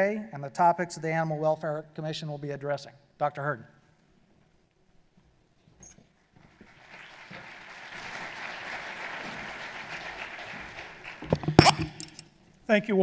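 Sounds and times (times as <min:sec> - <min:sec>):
audience applauding: 0:06.5 - 0:12.0.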